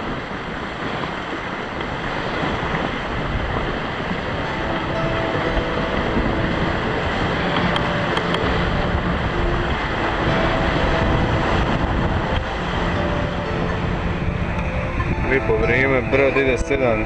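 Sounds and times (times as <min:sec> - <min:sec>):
water rushing along boat hull: 0:00.0 - 0:17.0
wind buffeting microphone: 0:00.0 - 0:17.0.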